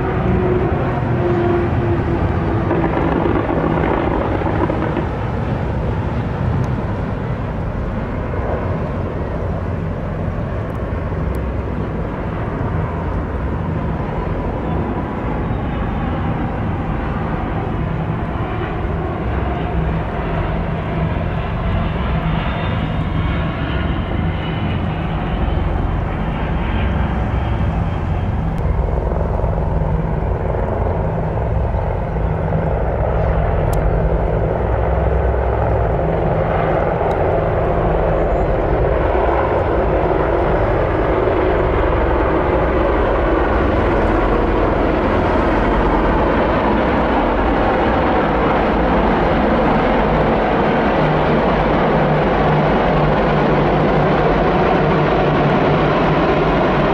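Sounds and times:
helicopter rotors and turbines: 0.0 - 56.9
jet engines droning: 0.0 - 56.9.

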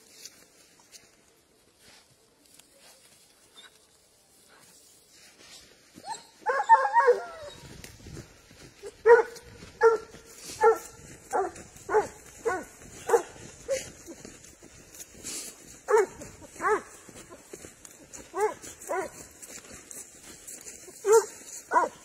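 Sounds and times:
dog yelping: 6.0 - 7.8, 15.9 - 16.9, 18.3 - 19.2, 21.0 - 22.0
hound baying: 6.0 - 7.8, 8.8 - 14.8, 15.6 - 19.7, 20.6 - 22.0.

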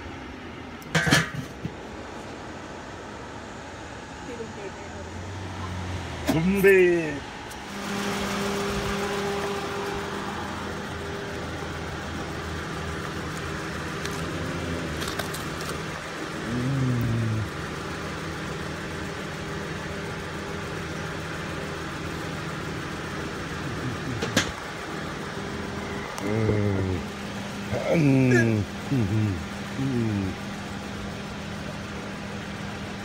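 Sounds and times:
motor humming: 7.5 - 32.9.

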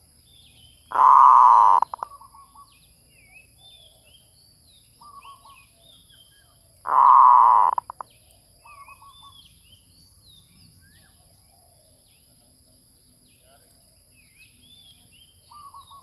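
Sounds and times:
high insect drone: 0.0 - 16.0
small birds chirping: 0.0 - 16.0
dove cooing: 0.9 - 2.4, 6.9 - 8.0.

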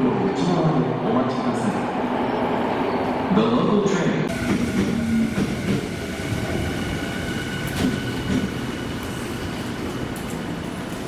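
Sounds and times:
train wheels rumbling on rail: 4.3 - 11.0.

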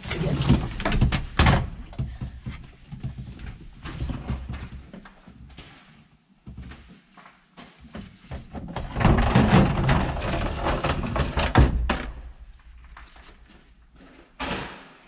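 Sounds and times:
folding table clattering: 0.0 - 4.8, 8.4 - 13.4.

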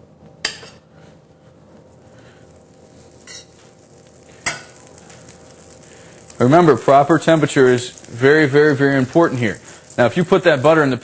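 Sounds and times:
butter sizzling in pan: 2.1 - 11.0.

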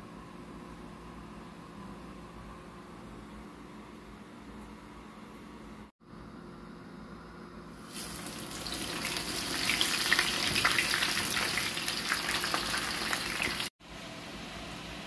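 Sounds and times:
fries sizzling in hot oil: 7.8 - 13.7.

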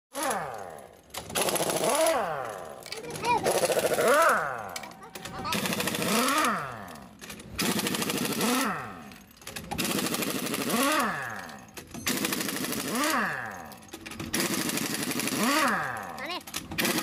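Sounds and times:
air impact wrench hammering: 0.2 - 17.0.

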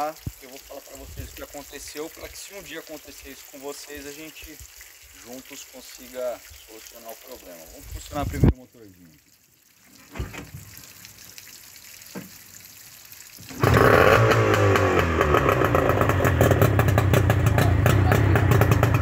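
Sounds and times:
outboard motor pull-start: 13.4 - 19.0
two-stroke motor running: 13.5 - 19.0.

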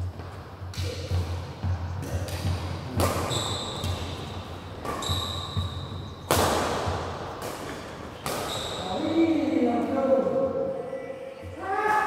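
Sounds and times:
shoes squeaking: 0.0 - 6.5, 7.4 - 9.4
racket hitting shuttlecock: 0.1 - 9.1.

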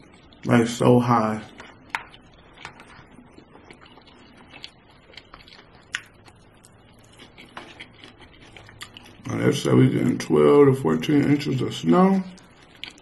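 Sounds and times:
wet chewing and lip-smacking: 1.5 - 9.3, 12.3 - 13.0.

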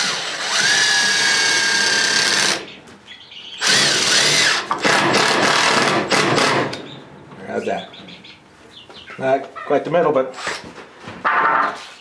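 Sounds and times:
cordless drill driving screws: 0.0 - 2.6, 3.6 - 6.8.

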